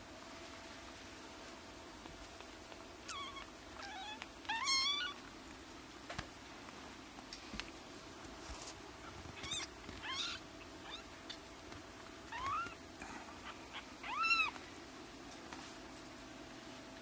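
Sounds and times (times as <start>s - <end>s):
kittens mewing: 3.0s - 5.2s, 9.0s - 11.1s, 12.3s - 14.6s.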